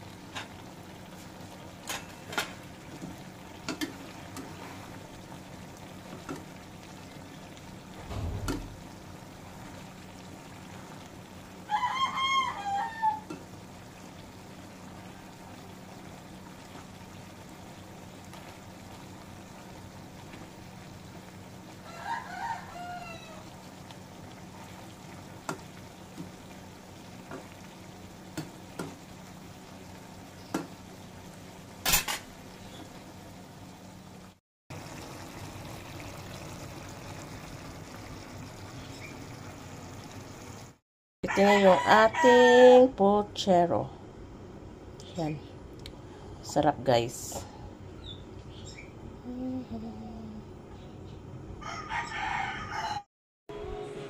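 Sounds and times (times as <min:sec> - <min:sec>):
stew simmering in a wok: 0:00.0 - 0:49.3
rooster crowing: 0:11.6 - 0:13.3, 0:21.8 - 0:23.6, 0:41.2 - 0:42.8, 0:51.6 - 0:53.1.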